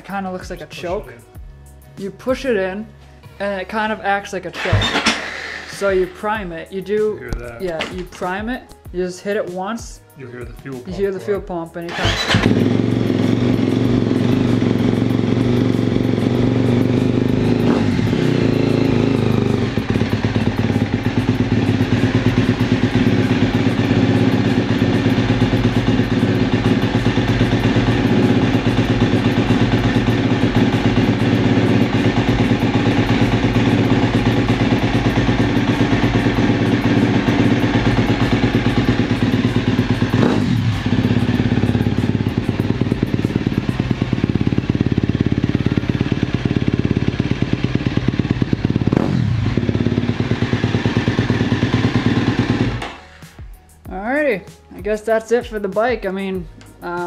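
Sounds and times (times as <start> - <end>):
engine throttle blips: 11.9 - 53.0
dirt bike engine idling: 12.0 - 53.0.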